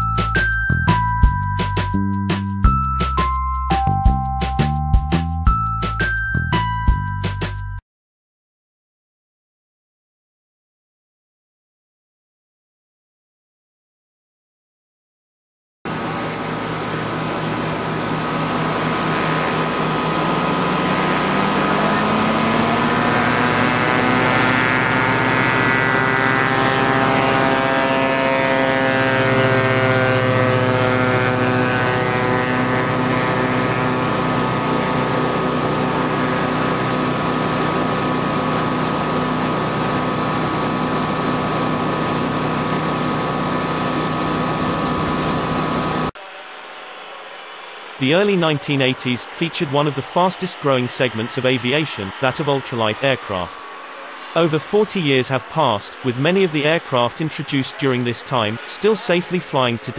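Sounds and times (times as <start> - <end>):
ultralight aircraft engine droning: 15.9 - 59.9.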